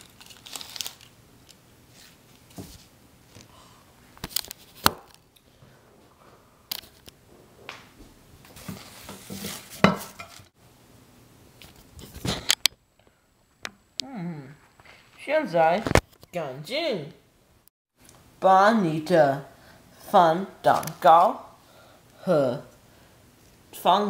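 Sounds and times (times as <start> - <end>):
paper napkin rustling: 8.5 - 10.5.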